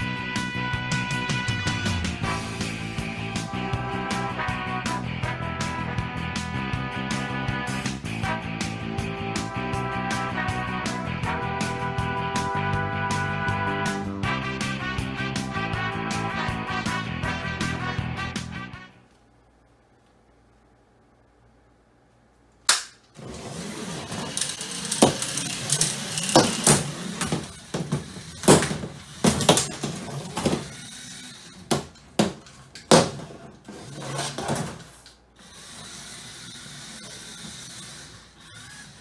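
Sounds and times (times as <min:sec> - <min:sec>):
sharp click: 0:22.6 - 0:23.1
electric motors whirring: 0:23.2 - 0:32.8, 0:33.6 - 0:39.0.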